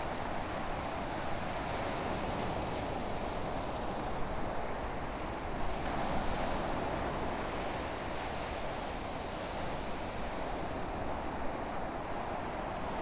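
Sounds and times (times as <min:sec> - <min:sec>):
wind: 0:00.0 - 0:13.0.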